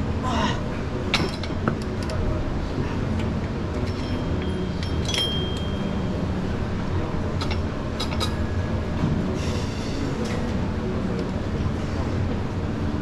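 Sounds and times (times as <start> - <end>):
metallic clinks of weights: 3.8 - 6.0.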